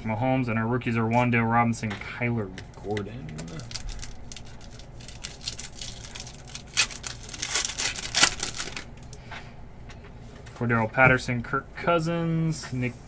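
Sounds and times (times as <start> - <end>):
foil wrapper tearing and crinkling: 2.9 - 9.2.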